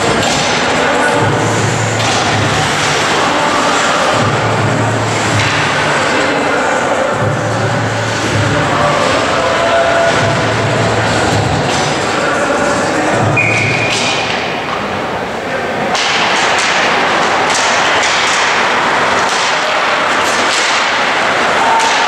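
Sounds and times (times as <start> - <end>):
sticks and puck clacking: 0.0 - 15.2, 15.8 - 22.0
voices: 0.0 - 22.0.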